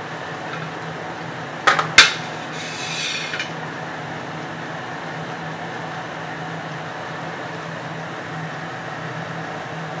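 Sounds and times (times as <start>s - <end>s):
low background hum: 0.0s - 10.0s
tableware clinking: 1.7s - 3.5s
short scrape: 2.2s - 3.5s.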